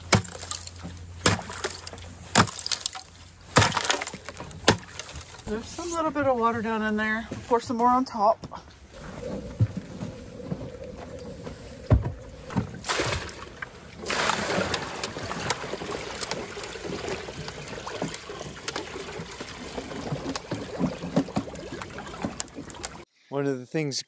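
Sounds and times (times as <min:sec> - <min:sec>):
knocks and clunks: 0:07.2 - 0:16.5
water pouring: 0:08.9 - 0:23.0.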